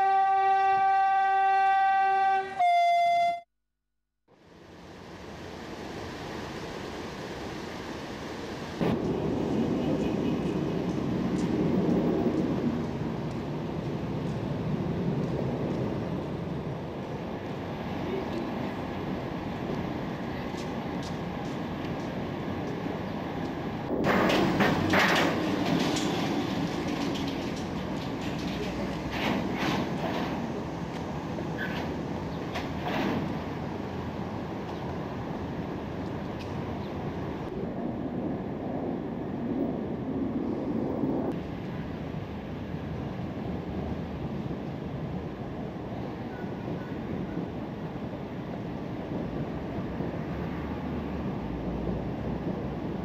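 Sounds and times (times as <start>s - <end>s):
train horn blast: 0.0s - 3.5s
wheels clanking on metal ramp: 24.0s - 30.4s.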